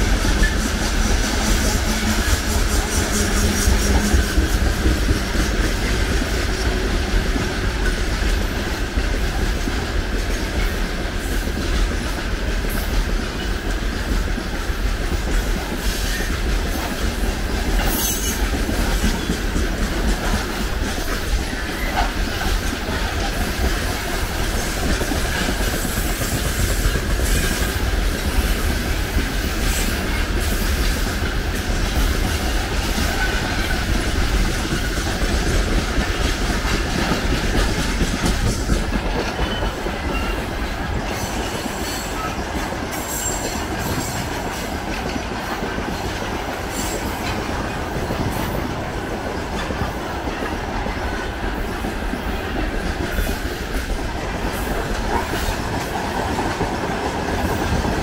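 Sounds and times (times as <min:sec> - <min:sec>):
freight train rumbling past: 0:00.0 - 0:58.0
wheels clacking over rail joints: 0:00.0 - 0:58.0.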